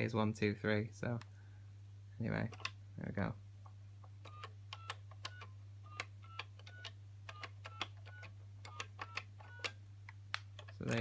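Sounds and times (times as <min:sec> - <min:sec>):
telephone key clicks: 0:04.2 - 0:09.8.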